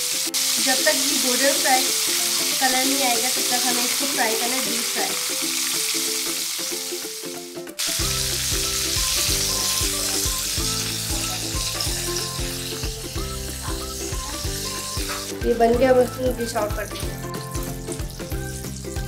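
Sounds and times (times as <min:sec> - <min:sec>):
chicken sizzling in hot oil: 0:00.0 - 0:19.0
background music with bass beat: 0:08.0 - 0:16.0.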